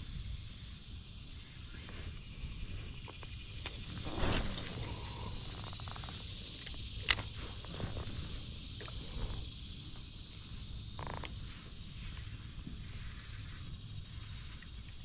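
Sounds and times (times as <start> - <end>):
insects hissing: 0.0 - 15.0
faint ticks: 4.7 - 10.2.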